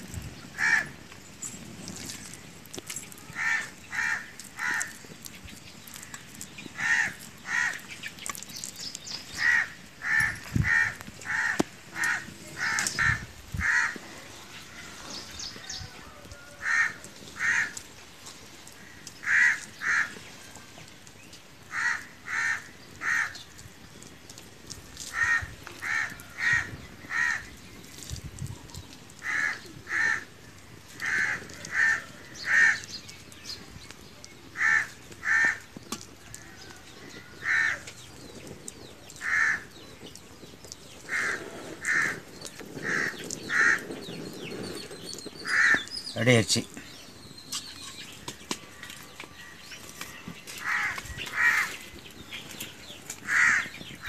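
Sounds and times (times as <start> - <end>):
bird calling: 41.0 - 54.0.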